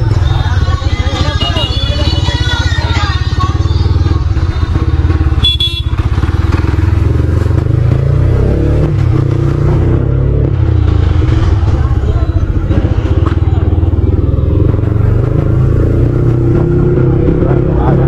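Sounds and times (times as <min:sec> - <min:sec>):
motorcycle engine accelerating: 0:00.0 - 0:18.0
horn beep: 0:00.1 - 0:04.1, 0:05.2 - 0:06.1.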